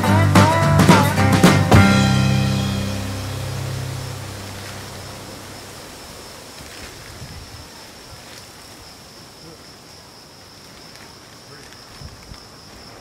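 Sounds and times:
background music: 0:00.0 - 0:05.3
steady hiss of air: 0:02.4 - 0:09.1.

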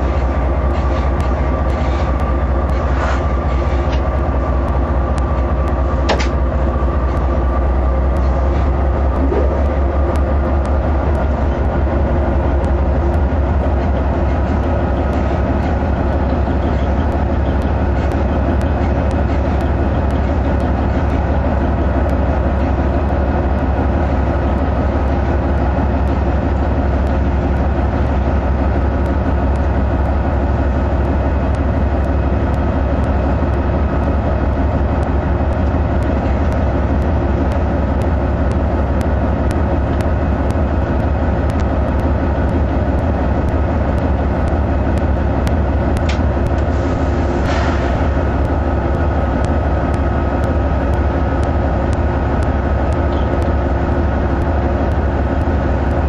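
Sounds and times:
high whine: 0:00.0 - 0:22.5
locomotive engine drone: 0:00.0 - 0:56.0.

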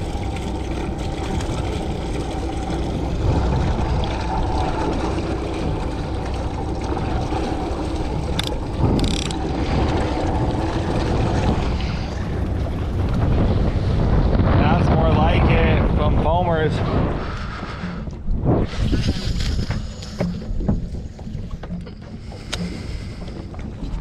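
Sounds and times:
outboard motor running: 0:00.0 - 0:16.7, 0:17.6 - 0:24.0
water and wind on hull: 0:00.0 - 0:24.0
fishing reel clicking: 0:08.4 - 0:09.4.

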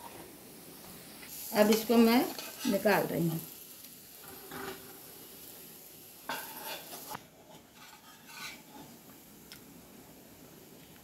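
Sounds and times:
oil sizzling: 0:00.0 - 0:11.0
spatula scraping frying pan: 0:01.6 - 0:03.0, 0:04.2 - 0:05.0, 0:06.3 - 0:09.0.

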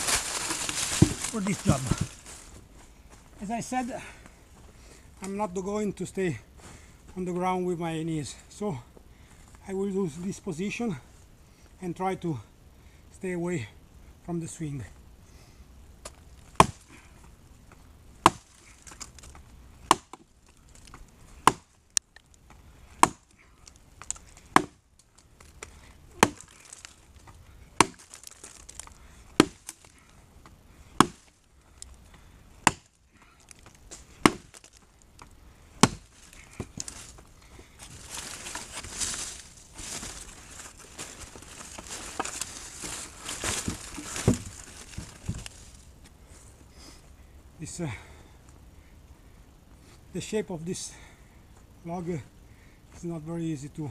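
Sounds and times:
rustling: 0:00.0 - 0:03.8, 0:16.0 - 0:19.6, 0:20.2 - 0:30.2, 0:31.0 - 0:46.6
axe chopping into log: 0:01.0 - 0:02.1, 0:16.6 - 0:16.8, 0:18.2 - 0:18.5, 0:19.8 - 0:20.3, 0:21.4 - 0:21.7, 0:23.0 - 0:23.3, 0:24.5 - 0:24.8, 0:26.2 - 0:26.6, 0:27.8 - 0:28.1, 0:29.4 - 0:29.8, 0:31.0 - 0:31.2, 0:32.6 - 0:32.9, 0:34.2 - 0:34.6, 0:35.8 - 0:36.8.

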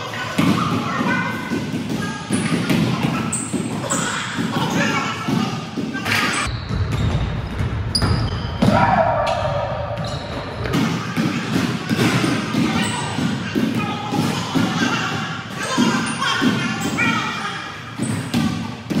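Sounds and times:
players' voices: 0:08.6 - 0:19.0.

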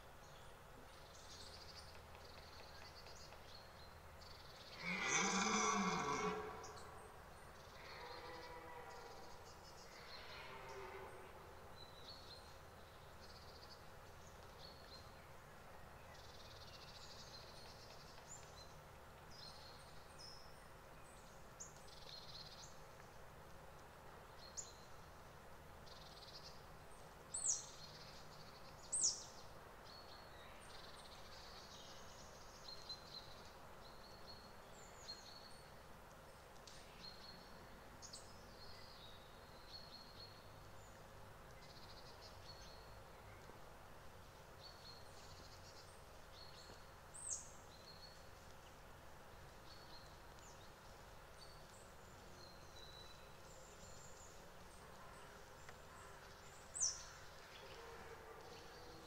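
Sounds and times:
small birds chirping: 0:00.0 - 0:59.0
distant deer roar: 0:04.7 - 0:09.3.

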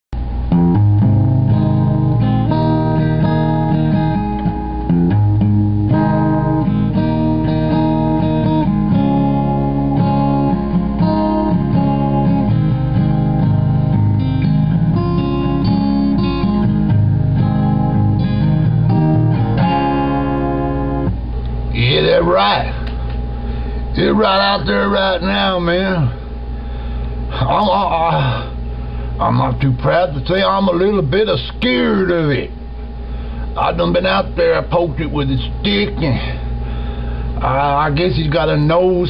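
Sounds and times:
guitar strummed and picked: 0:00.2 - 0:39.0.

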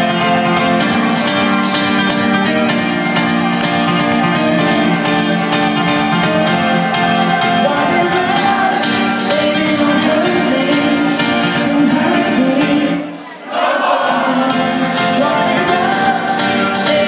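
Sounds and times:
guitar: 0:00.0 - 0:13.2, 0:14.4 - 0:17.0
loud dance music: 0:00.0 - 0:13.2, 0:14.1 - 0:17.0
person singing: 0:04.3 - 0:13.2, 0:13.9 - 0:17.0.

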